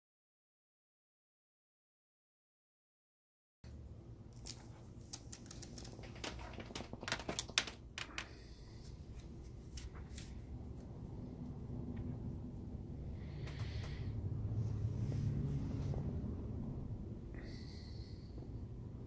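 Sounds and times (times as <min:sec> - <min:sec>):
low steady hum: 0:03.7 - 0:19.0
paper rustling and crackling: 0:04.4 - 0:10.5.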